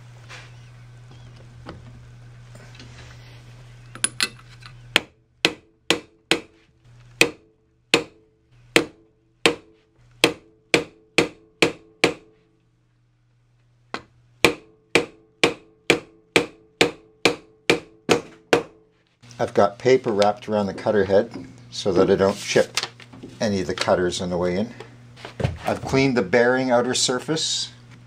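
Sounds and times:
hammer tapping steel tube: 4.9s - 6.5s, 7.2s - 12.3s, 14.0s - 18.8s.

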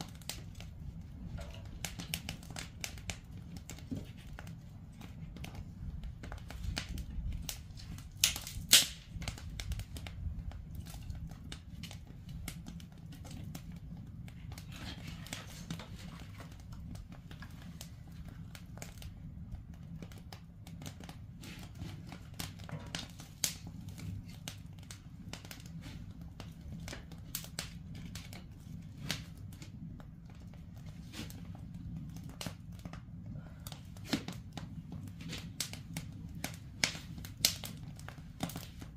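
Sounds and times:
sharp snaps and pops: 0.0s - 38.9s
wood fire crackling: 0.0s - 38.9s.

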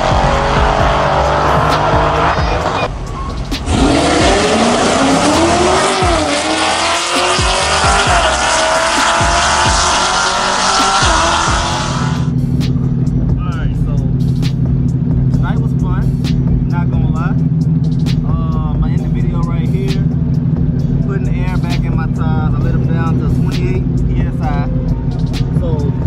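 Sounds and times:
racing car engines at full throttle: 0.0s - 26.0s.

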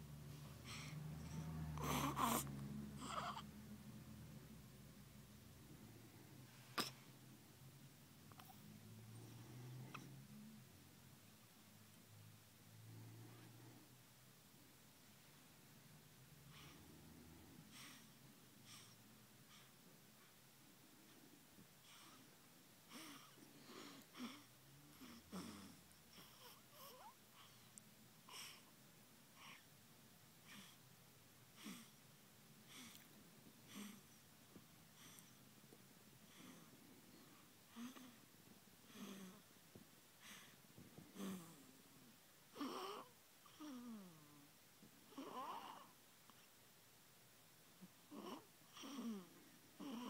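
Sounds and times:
baby breathing: 0.3s - 3.5s
baby whimpering: 1.8s - 3.5s, 45.1s - 45.9s.

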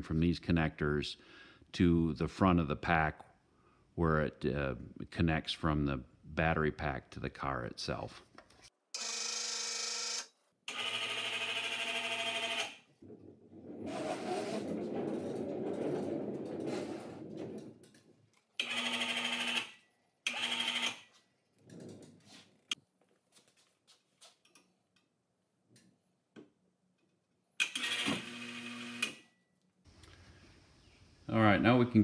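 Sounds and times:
rough rumbling rustling noise: 13.0s - 18.3s.

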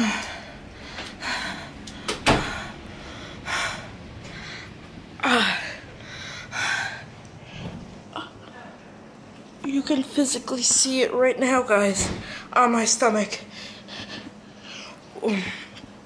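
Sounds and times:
person gasping breaths: 0.0s - 8.4s.

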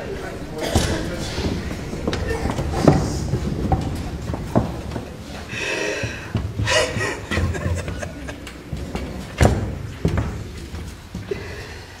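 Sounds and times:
person laughing: 6.6s - 8.6s.

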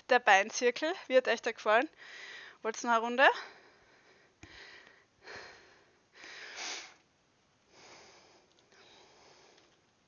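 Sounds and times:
woman breathing hard: 2.0s - 2.6s, 3.4s - 7.0s, 7.7s - 9.8s.

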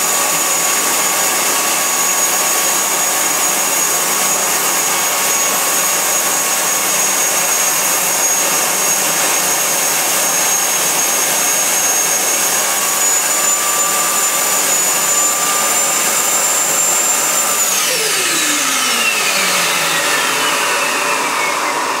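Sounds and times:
turbine whine: 0.0s - 22.0s
loud rushing roar: 10.9s - 22.0s.

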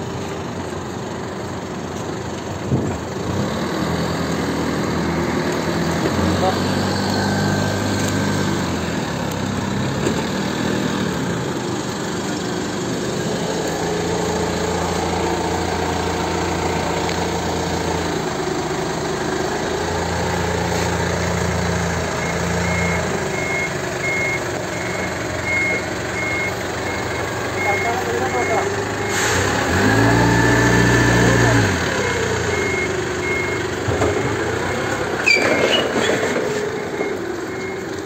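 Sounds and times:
forklift engine running: 0.0s - 38.0s
reversing alarm beeping: 22.2s - 38.0s.

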